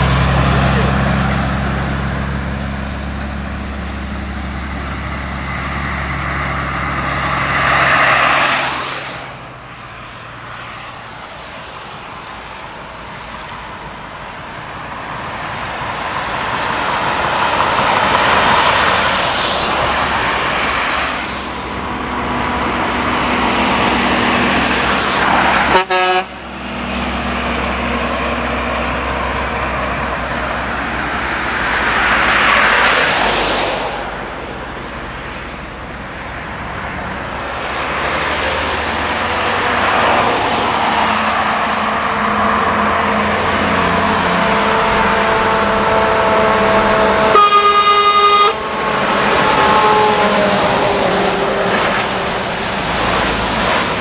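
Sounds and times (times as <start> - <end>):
vehicles passing on highway: 0.0 - 54.0
vehicle horn toot: 25.7 - 26.4, 44.4 - 48.8.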